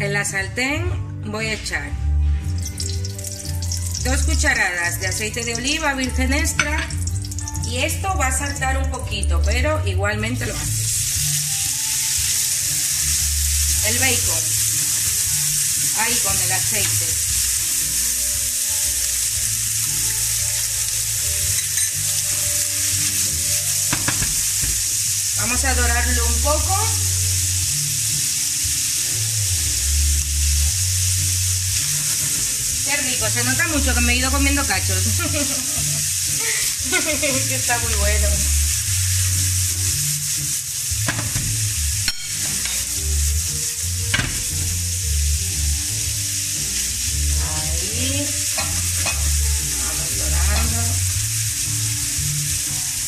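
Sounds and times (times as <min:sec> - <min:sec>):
bacon sizzling in oil: 0:02.2 - 0:53.0
metal spoon knocking on pan: 0:06.5 - 0:07.0, 0:23.9 - 0:24.8, 0:41.0 - 0:42.8, 0:48.6 - 0:49.3.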